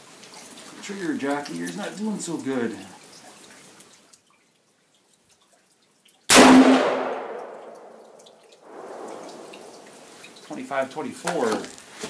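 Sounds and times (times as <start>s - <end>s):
rifle shot with echo: 6.3s - 9.9s.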